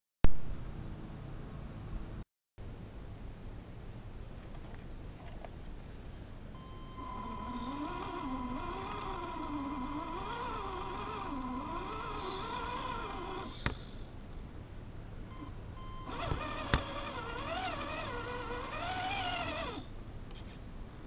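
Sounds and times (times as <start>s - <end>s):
steady higher whine: 6.6s - 14.1s
electric motor whining: 7.0s - 14.1s, 16.0s - 19.9s.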